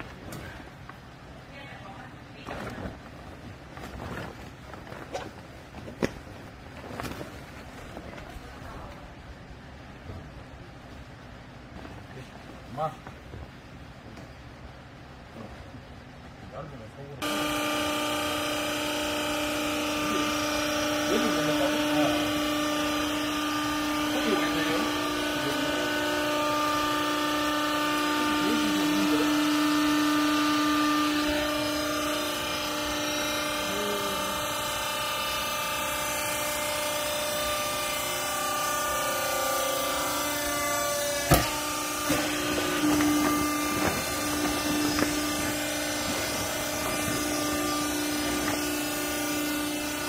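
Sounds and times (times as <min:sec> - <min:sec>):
hydraulic press humming: 0:17.2 - 0:50.0
sharp knocks: 0:41.2 - 0:46.3.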